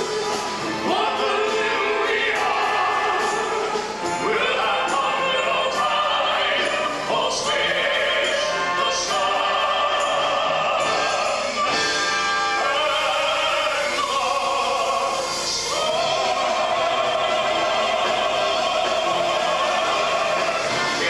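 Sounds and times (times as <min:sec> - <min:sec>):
instrumental accompaniment: 0:00.0 - 0:21.0
operatic singing: 0:00.0 - 0:21.0.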